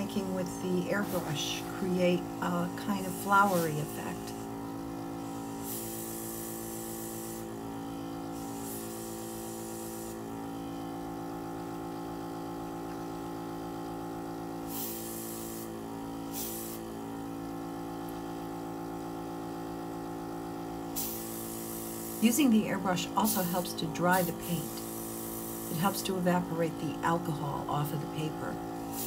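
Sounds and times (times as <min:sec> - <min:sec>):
airbrush hissing bursts: 0:00.0 - 0:04.4, 0:05.1 - 0:07.6, 0:08.2 - 0:10.4, 0:14.6 - 0:17.0, 0:20.8 - 0:29.0
compressor hum: 0:00.0 - 0:29.0.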